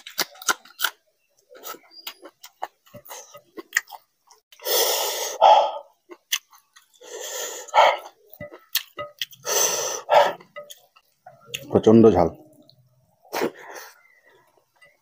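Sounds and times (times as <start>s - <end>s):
wet chewing clicks: 0.0s - 4.4s, 6.0s - 7.1s, 7.7s - 9.5s.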